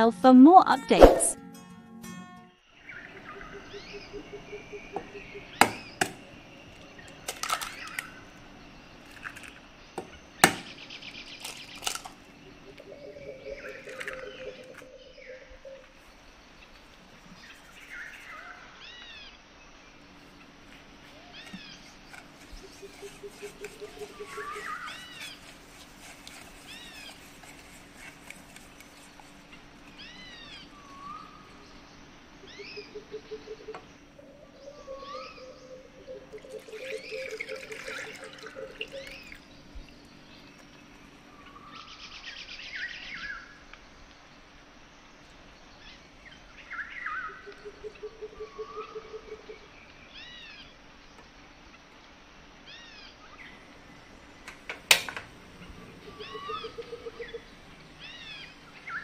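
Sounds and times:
low rapid bird trills: 2.8s - 43.6s, 55.3s - 59.0s
small birds chirping: 2.8s - 59.0s.

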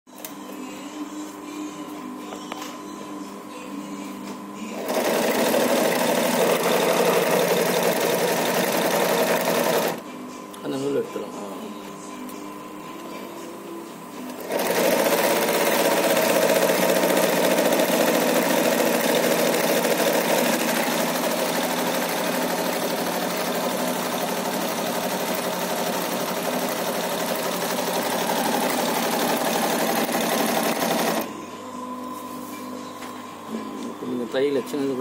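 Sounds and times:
sewing machine stitching: 4.8s - 10.0s, 14.4s - 31.3s.

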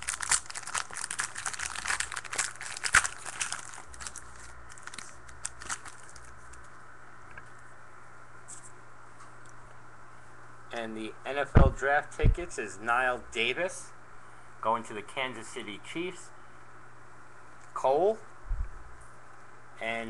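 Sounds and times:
wrapper crinkling and tearing: 0.0s - 6.7s.

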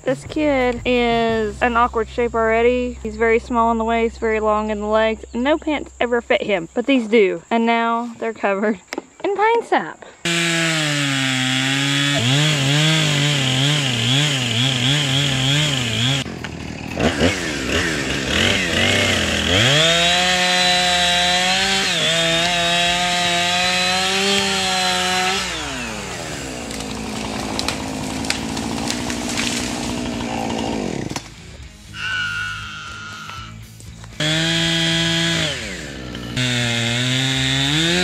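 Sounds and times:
chainsaw cutting wood: 10.2s - 33.6s, 34.2s - 38.0s
tree cracking and snapping: 10.3s - 31.4s.

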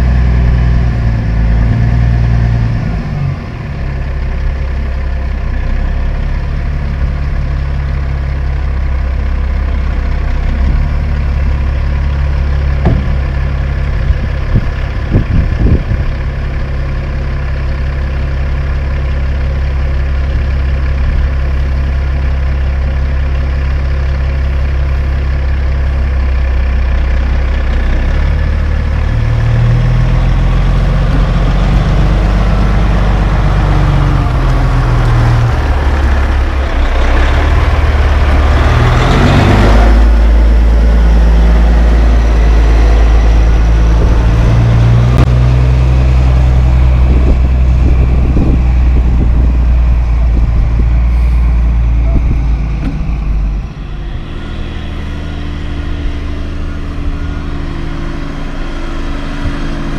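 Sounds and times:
diesel engine idling: 0.0s - 59.9s
sharp knocks: 12.8s - 13.3s.

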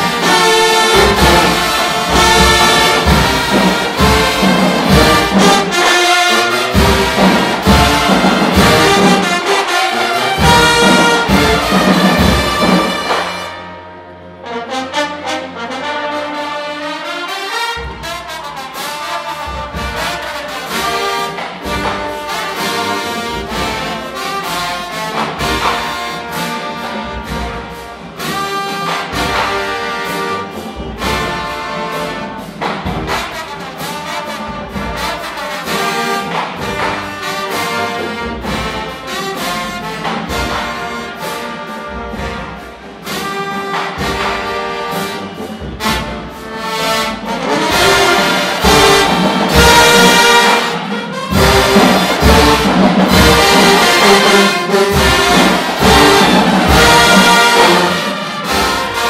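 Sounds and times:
strong regular beat: 0.0s - 13.4s, 45.4s - 59.0s
marching band brass playing: 0.0s - 59.0s.

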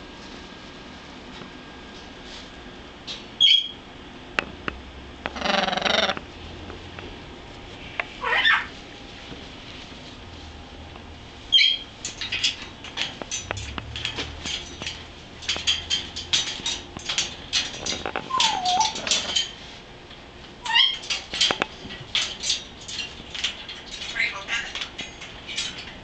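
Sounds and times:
parrot calling: 3.4s - 3.8s, 5.3s - 6.2s, 8.2s - 8.8s, 11.5s - 11.9s, 18.3s - 19.0s, 20.6s - 21.0s
beak and claws clicking on metal: 12.0s - 19.6s, 20.7s - 26.0s.

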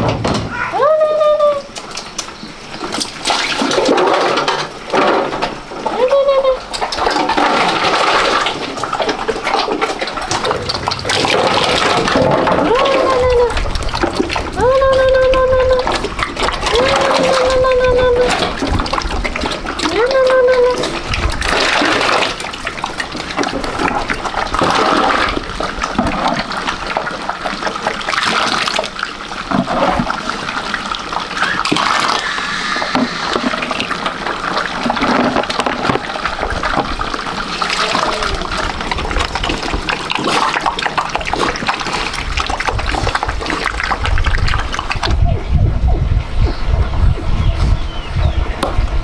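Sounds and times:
water running and splashing: 1.3s - 45.4s
low rumble: 10.2s - 19.4s.

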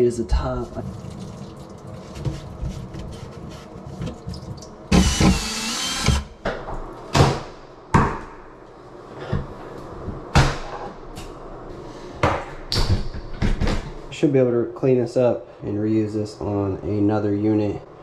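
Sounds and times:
cordless drill whining: 4.9s - 6.3s.

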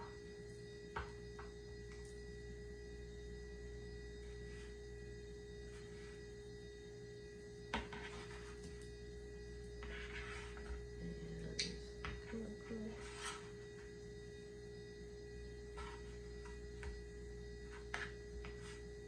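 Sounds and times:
steady hum: 0.0s - 19.0s
soft taps and scrapes in flour: 17.6s - 18.9s.

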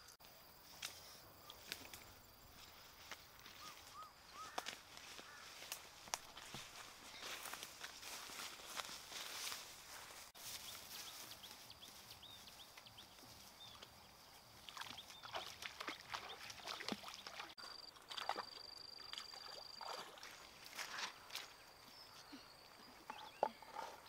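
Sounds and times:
splashing steps in water: 14.6s - 21.6s.

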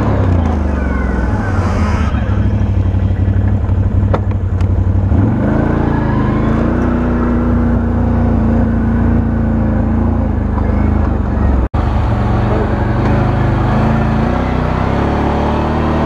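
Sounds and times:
atv engine revving: 0.0s - 16.0s.

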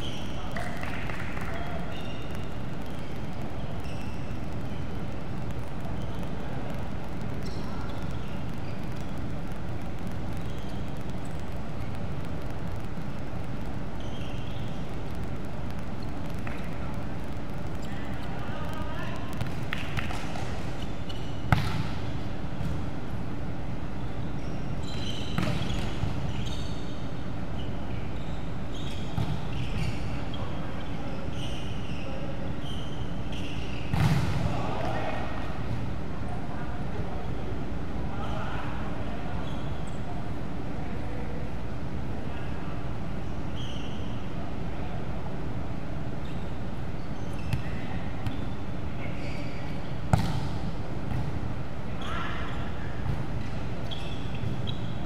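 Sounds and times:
sneakers squeaking on floor: 0.0s - 6.8s, 7.4s - 9.5s, 10.1s - 12.0s, 13.9s - 15.0s, 19.3s - 22.8s, 24.0s - 34.5s, 43.3s - 44.3s, 46.2s - 51.3s, 52.0s - 55.0s
steady hall hum: 0.0s - 55.0s
hard hit on volleyball: 21.5s - 22.0s, 33.9s - 34.6s, 50.1s - 51.4s.

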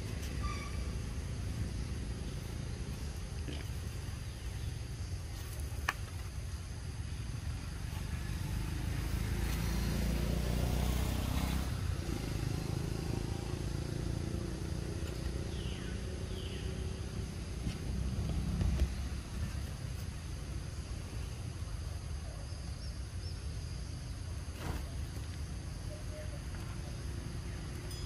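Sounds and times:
low outdoor rumble: 0.0s - 28.0s.

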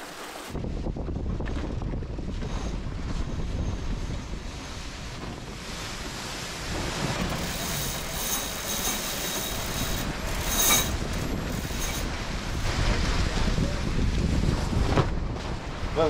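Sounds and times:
rush of wind and water: 0.0s - 16.0s
winch pawls ratcheting: 7.2s - 12.1s.

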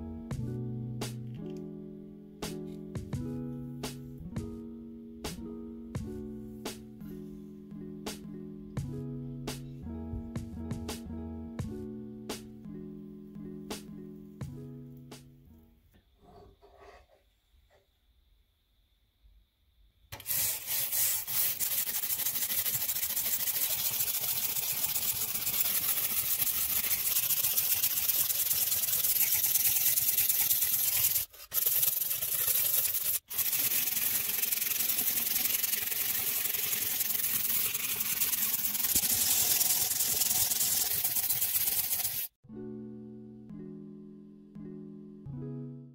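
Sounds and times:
wire brush scrubbing metal: 20.2s - 42.3s.

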